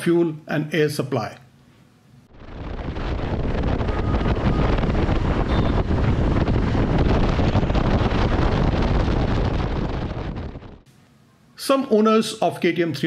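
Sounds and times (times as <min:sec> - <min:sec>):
wind buffeting microphone: 0:02.3 - 0:10.9.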